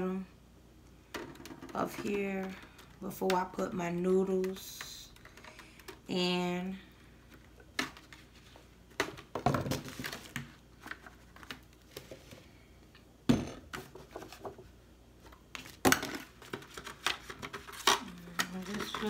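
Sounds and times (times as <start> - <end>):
aluminum foil crinkling: 15.6 - 19.0.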